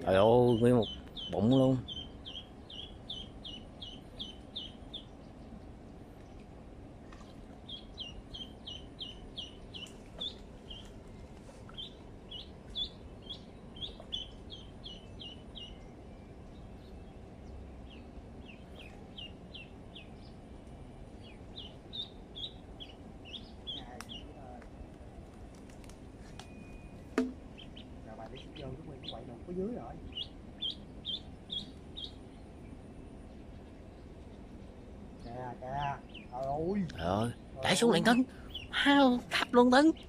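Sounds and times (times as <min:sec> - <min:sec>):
duckling peeping: 0:00.0 - 0:05.4, 0:07.2 - 0:11.0, 0:11.6 - 0:15.8, 0:21.2 - 0:24.5, 0:27.2 - 0:32.8.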